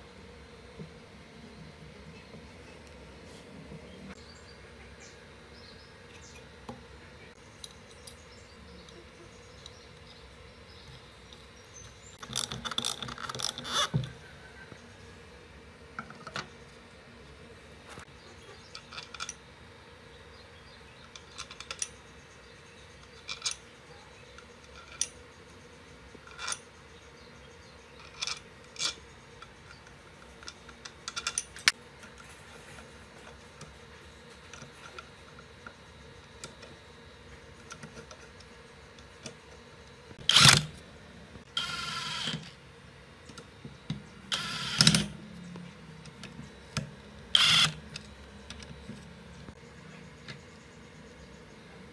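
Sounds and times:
cordless screwdriver driving screws: 47.4s - 47.8s.

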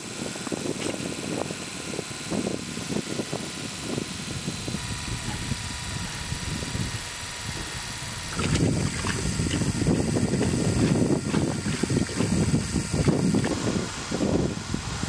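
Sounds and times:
electric pump motor whining: 0.0s - 15.0s
water splashing into plastic bucket: 8.3s - 13.6s.

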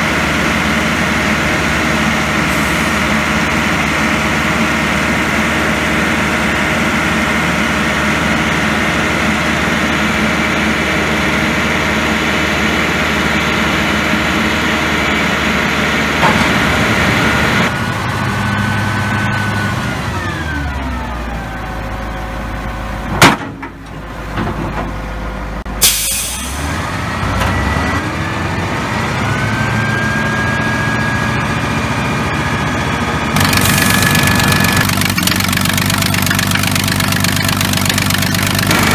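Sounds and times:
diesel engine running: 0.0s - 38.9s
hiss of air: 25.8s - 26.6s.

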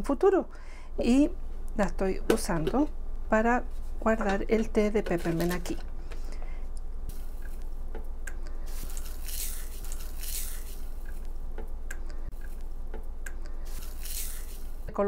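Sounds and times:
dried leaves crackling: 8.5s - 11.3s, 13.5s - 14.9s.

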